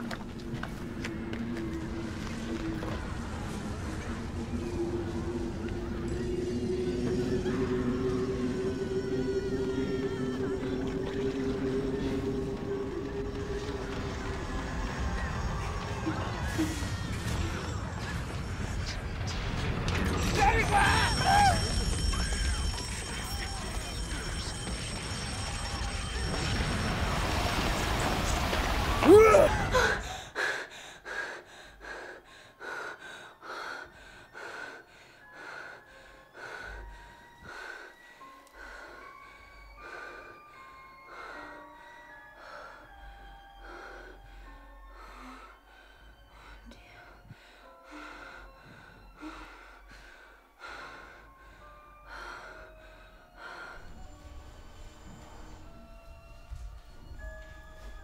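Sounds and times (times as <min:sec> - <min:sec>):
woman screaming: 0:29.0 - 0:30.0.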